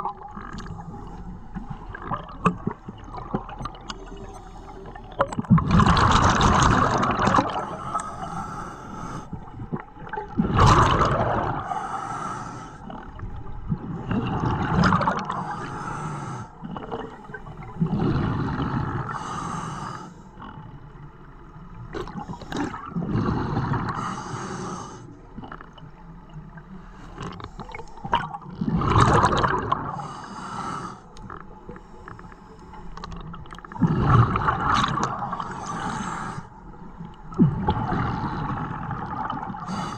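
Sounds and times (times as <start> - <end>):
gurgling rush of exhaled bubbles: 0.0 - 4.3, 5.0 - 8.0, 9.3 - 11.8, 12.9 - 15.6, 16.7 - 19.2, 21.9 - 24.0, 27.2 - 30.0, 33.2 - 36.1, 37.2 - 39.9.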